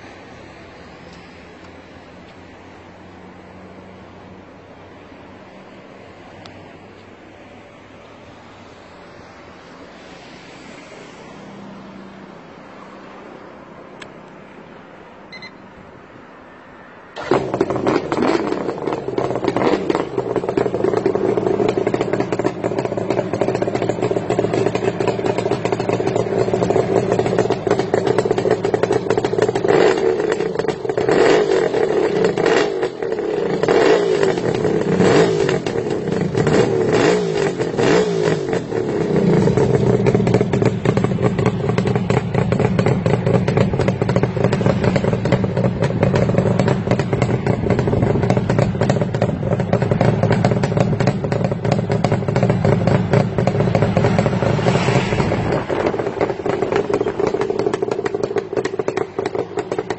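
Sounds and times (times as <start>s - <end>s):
motorcycle engine idling and revving: 17.1s - 59.9s.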